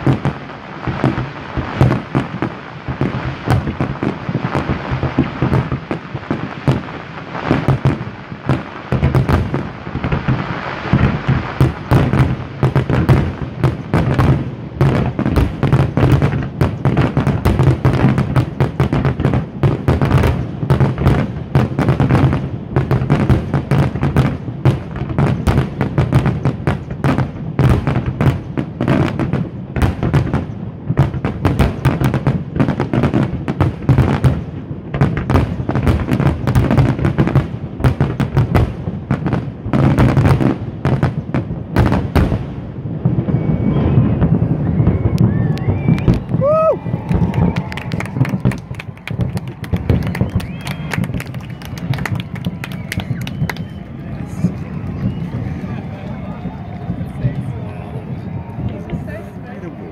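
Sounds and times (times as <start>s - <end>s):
fireworks bursting and crackling: 0.0s - 59.9s.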